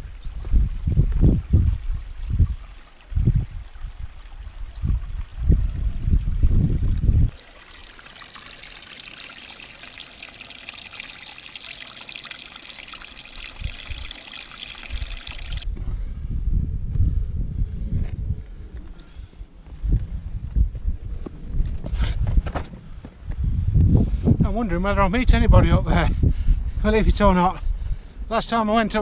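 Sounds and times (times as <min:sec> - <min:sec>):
water trickling into a pool: 0:00.0 - 0:15.7.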